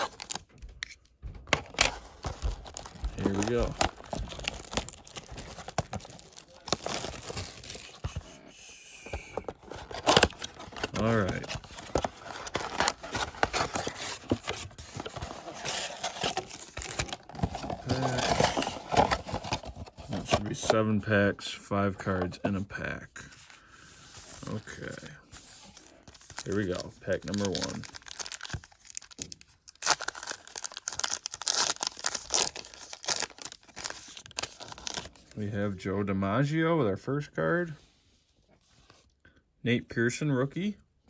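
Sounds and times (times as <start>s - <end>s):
foil card packs crinkling: 0.0s - 0.5s, 1.6s - 8.3s, 9.3s - 20.8s, 23.6s - 35.3s.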